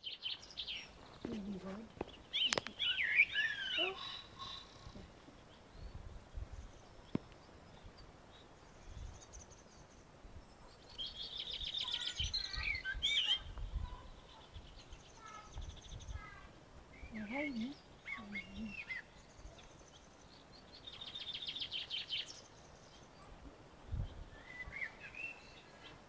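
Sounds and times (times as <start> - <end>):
songbirds trilling: 0.0 - 26.0
wind rumble on microphone: 4.7 - 7.2, 12.2 - 14.8, 23.4 - 24.8.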